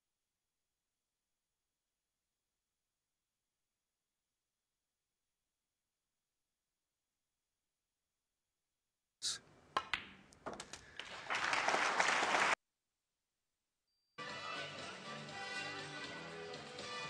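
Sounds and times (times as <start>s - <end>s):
snooker balls clicking: 9.7s - 10.9s
audience applause: 10.5s - 12.6s
music: 14.2s - 17.0s.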